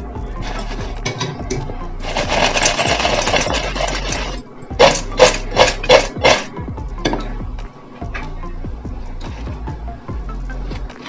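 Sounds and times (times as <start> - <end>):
fried potatoes rattling in colander: 0.4 - 6.5.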